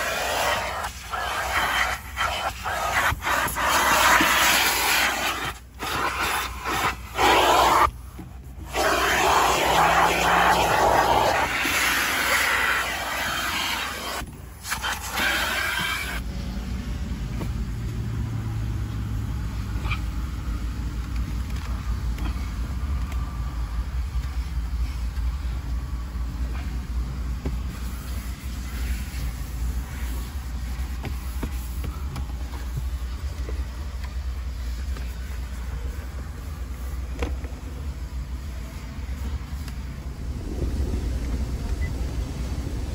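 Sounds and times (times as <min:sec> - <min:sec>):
vacuum hose sucking air: 0:00.0 - 0:16.2, 0:26.3 - 0:37.2
steady low rumble: 0:16.1 - 0:42.9.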